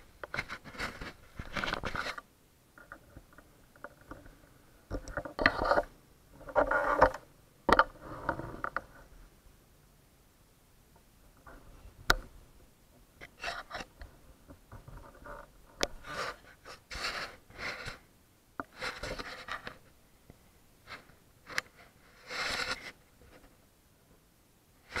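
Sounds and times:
cloth rustling on microphone: 0.3s - 2.2s.

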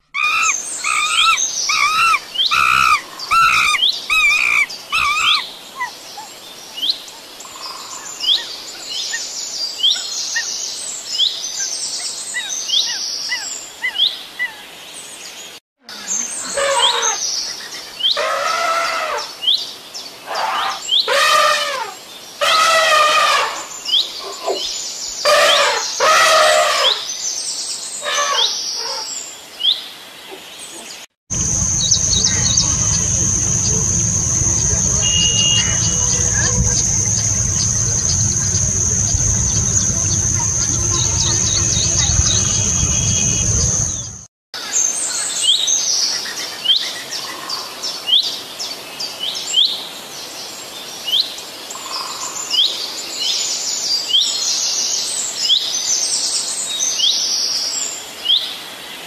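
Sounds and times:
long loud animal calls: 0.2s - 5.4s
birds chirping: 0.2s - 6.5s, 31.3s - 44.3s
steady high-pitched tone: 31.3s - 44.2s
low rumble: 31.3s - 44.3s.

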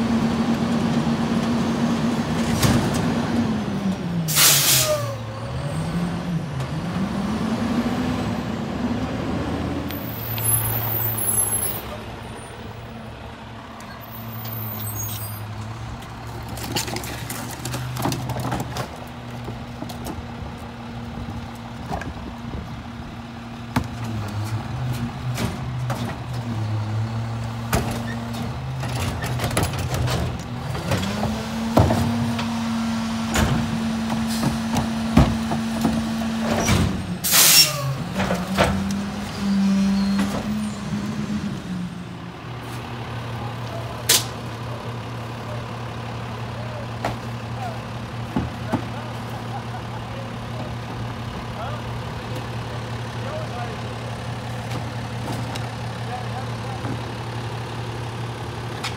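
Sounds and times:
sharp air hiss: 4.3s - 5.0s
garbage truck diesel engine idling: 42.1s - 58.8s.

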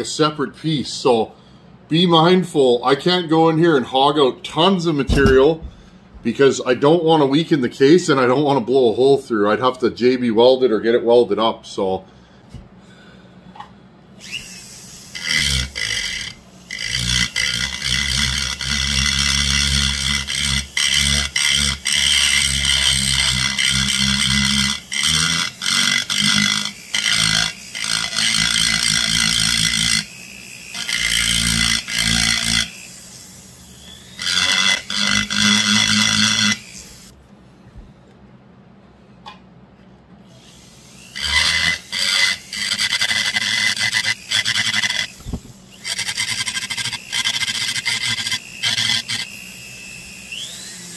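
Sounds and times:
rotary tool grinding: 14.2s - 37.1s, 40.4s - 50.9s.

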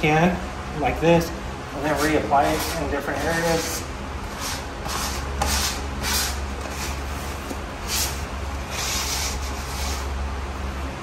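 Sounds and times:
grout float scraping tiles: 1.8s - 10.1s.

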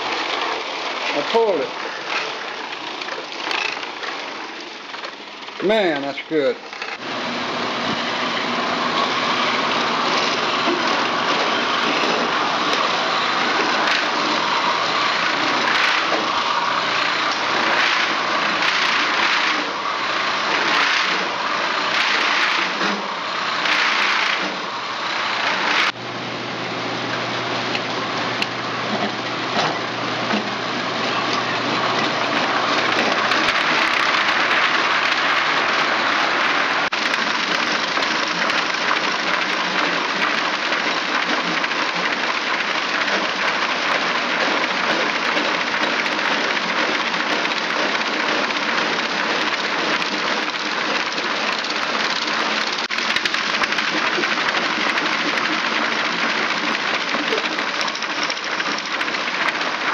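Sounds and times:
machine whirring: 0.0s - 59.9s.

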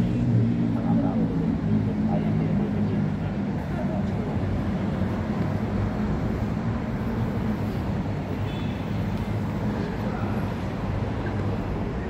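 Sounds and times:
city traffic rumble: 0.0s - 12.0s.

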